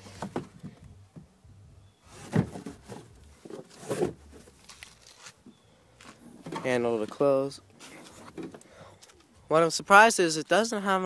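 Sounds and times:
rustling of trunk cover: 0.0s - 8.6s.

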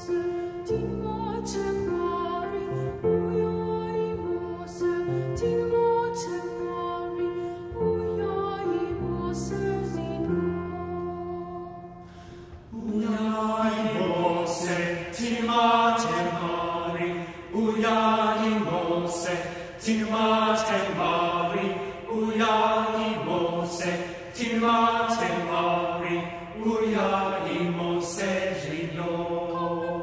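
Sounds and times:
male choir singing a hymn: 12.7s - 30.0s.

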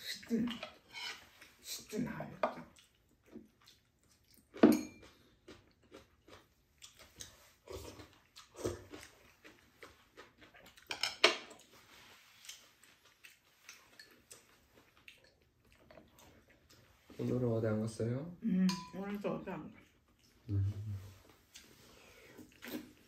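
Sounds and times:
people chewing noodles: 0.1s - 17.4s, 19.6s - 23.0s.

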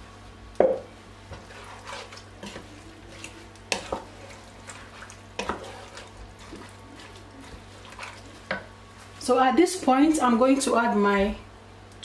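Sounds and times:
spatula stirring thick soup: 1.2s - 9.3s.

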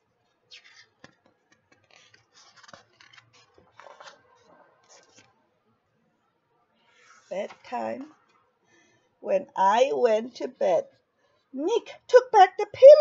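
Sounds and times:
paper book pages rustling: 0.5s - 5.4s, 6.9s - 8.4s.

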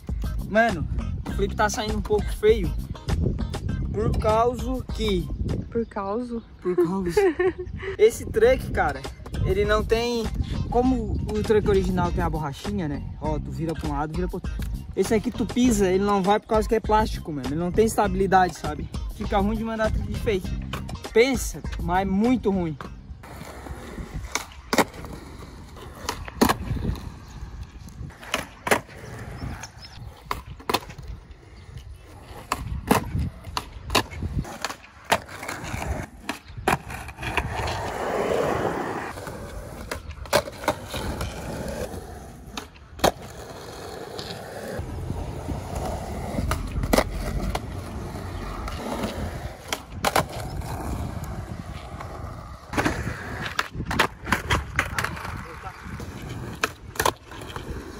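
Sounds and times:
wheels rolling over concrete: 22.7s - 57.9s
skateboard pops and slaps: 26.0s - 26.8s, 28.2s - 28.9s, 30.2s - 31.1s, 32.4s - 37.9s, 42.5s - 43.3s, 52.7s - 55.4s, 56.6s - 57.6s.

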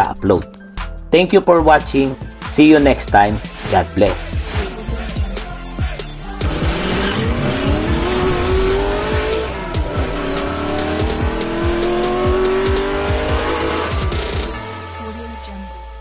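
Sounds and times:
music with steady beat: 0.0s - 15.8s
car engine accelerating: 3.3s - 16.0s.

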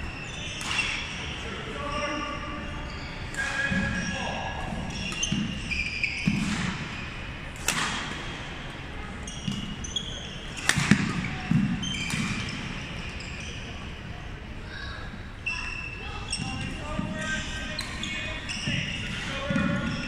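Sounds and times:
shoes squeaking on hardwood floor: 1.8s - 7.2s, 15.4s - 20.0s
racket striking shuttlecock: 7.6s - 8.2s, 10.6s - 12.5s.

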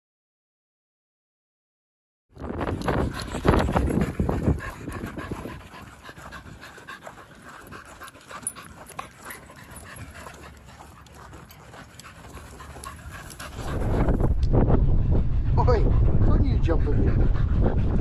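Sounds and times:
dog panting: 2.5s - 18.0s.

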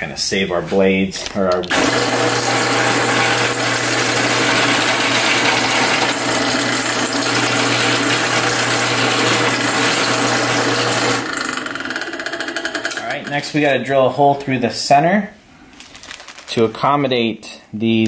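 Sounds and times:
drill press drilling metal: 1.6s - 13.4s.

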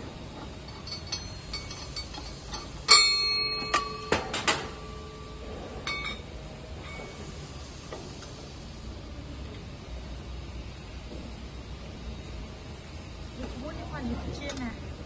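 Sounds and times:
ringing metal clank: 0.7s - 7.1s.

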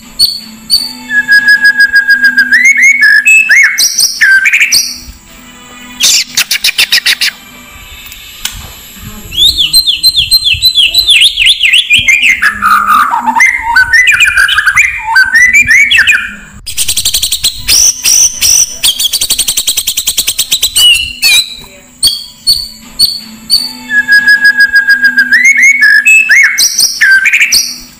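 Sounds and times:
bird whistled song: 0.1s - 5.1s, 6.0s - 7.4s, 9.3s - 27.9s
bird high chattering: 6.0s - 7.4s.

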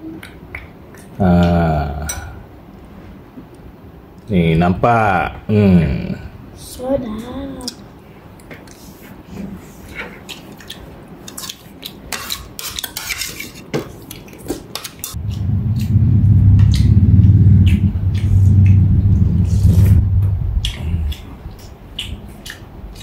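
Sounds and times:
loud low rumble: 15.2s - 21.6s.

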